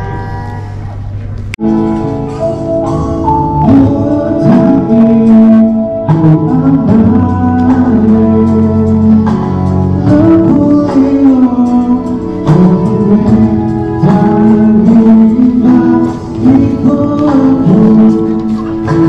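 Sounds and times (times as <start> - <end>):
guitar: 0.0 - 19.0
gospel singing with accompaniment: 3.3 - 19.0.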